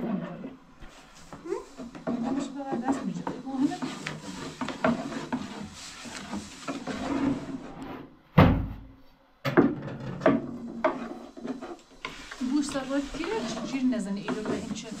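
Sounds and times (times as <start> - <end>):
objects knocking and clattering: 8.4 - 12.2.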